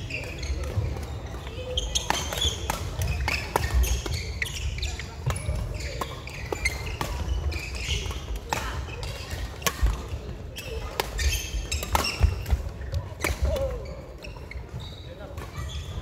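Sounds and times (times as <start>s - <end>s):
voices in sports hall: 0.0s - 16.0s
rackets hitting shuttlecock: 1.7s - 13.8s.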